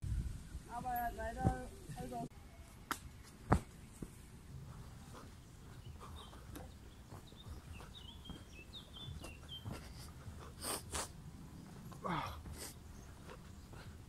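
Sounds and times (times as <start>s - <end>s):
small birds chirping: 3.1s - 14.0s.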